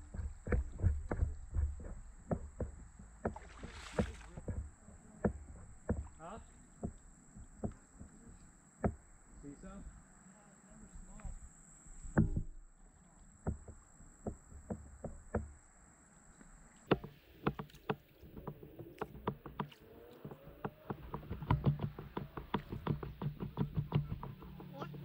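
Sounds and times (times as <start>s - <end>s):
paddle strokes in water: 0.0s - 8.2s, 16.8s - 25.0s
paddle knocking against hull: 0.0s - 9.1s, 13.4s - 15.6s, 16.9s - 25.0s.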